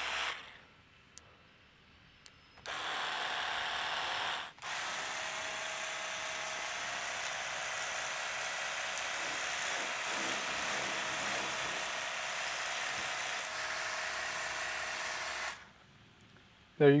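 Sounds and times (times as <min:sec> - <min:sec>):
electric pump motor whine: 0:02.6 - 0:15.7.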